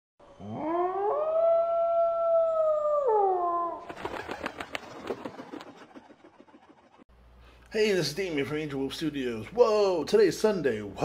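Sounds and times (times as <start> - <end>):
wolf howling: 0.3 - 3.9.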